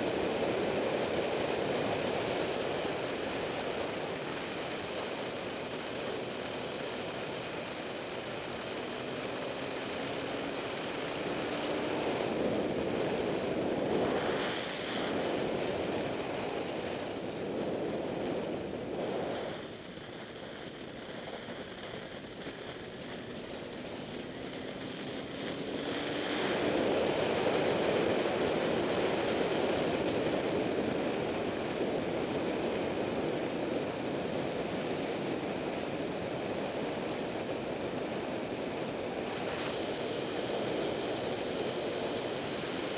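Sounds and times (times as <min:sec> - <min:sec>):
road and wind noise: 0:00.0 - 0:42.9
hiss: 0:14.0 - 0:15.8, 0:19.0 - 0:30.2, 0:39.2 - 0:42.9.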